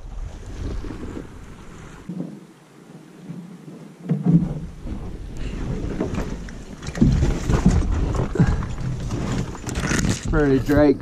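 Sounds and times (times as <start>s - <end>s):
wind noise on microphone: 4.4s - 11.0s.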